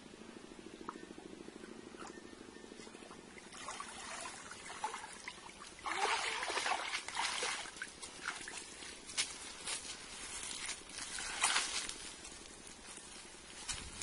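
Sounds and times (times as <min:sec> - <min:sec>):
water splashing and trickling: 0:02.8 - 0:09.3, 0:10.2 - 0:12.2.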